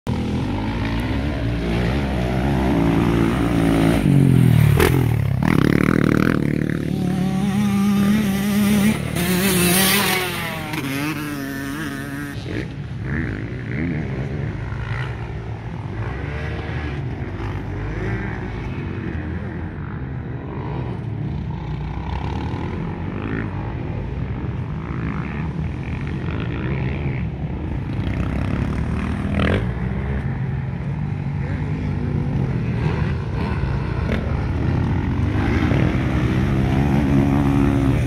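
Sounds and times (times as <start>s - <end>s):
dirt bike engine revving: 0.1s - 19.6s, 31.4s - 38.0s.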